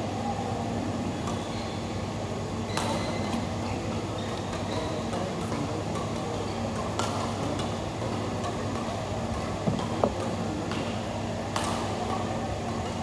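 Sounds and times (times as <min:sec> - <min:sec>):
rackets striking shuttlecock: 0:09.6 - 0:12.1.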